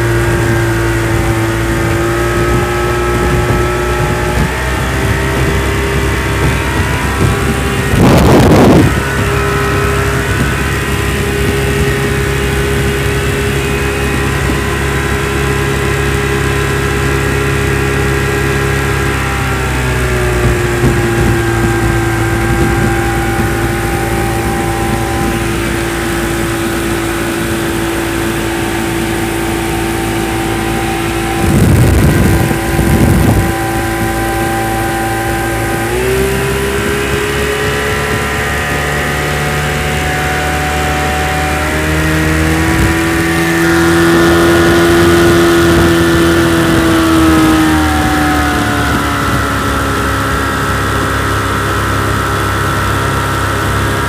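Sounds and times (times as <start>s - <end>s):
outboard motor running: 0.0s - 54.0s
rushes of noise: 0.0s - 54.0s.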